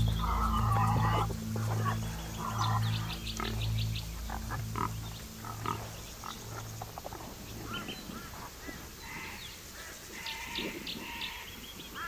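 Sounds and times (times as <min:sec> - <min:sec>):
low steady hum: 0:00.0 - 0:09.5
animal calls and grunting: 0:00.0 - 0:11.6
bird chirps: 0:00.0 - 0:12.0.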